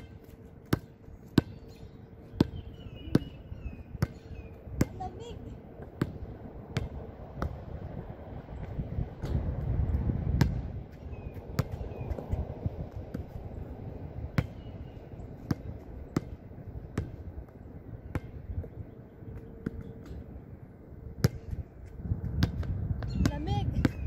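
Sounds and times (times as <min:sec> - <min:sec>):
basketball bouncing on hard court: 0:00.0 - 0:07.6, 0:10.4 - 0:10.7, 0:11.6 - 0:12.3, 0:15.4 - 0:17.3, 0:18.0 - 0:18.8.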